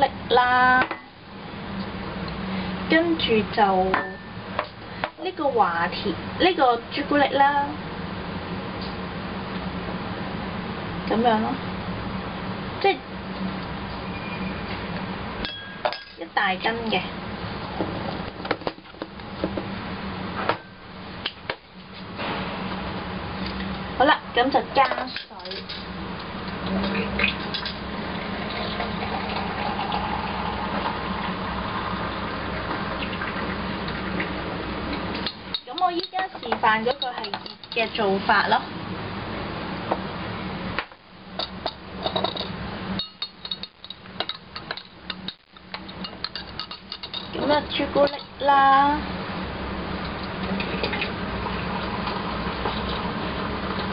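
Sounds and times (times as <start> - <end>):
spoon clinking against glass: 15.4 - 16.2
liquid pouring: 28.1 - 34.3, 50.6 - 53.9
spoon clinking against glass cups: 41.4 - 47.4.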